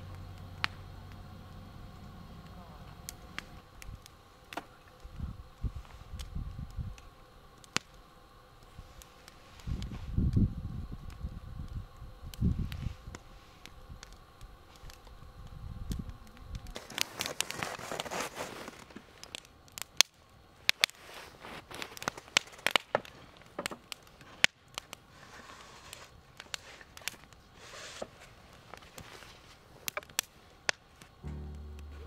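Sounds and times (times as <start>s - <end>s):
fire hissing flare-ups: 0.0s - 32.0s
wood fire crackling and popping: 0.0s - 32.0s
low rumble: 31.2s - 32.0s.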